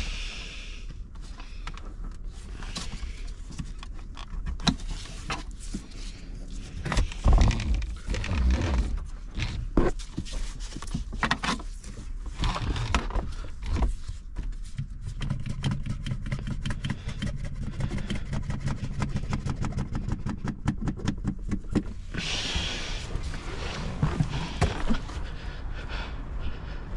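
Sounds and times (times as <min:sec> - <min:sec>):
steady low hum: 0:11.8 - 0:26.9
hand tools scraping and knocking: 0:14.7 - 0:25.3.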